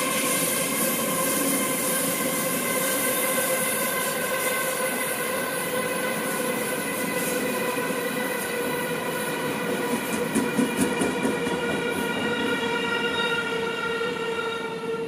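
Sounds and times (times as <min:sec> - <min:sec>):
train wheels clattering over rail joints: 0:09.6 - 0:12.0.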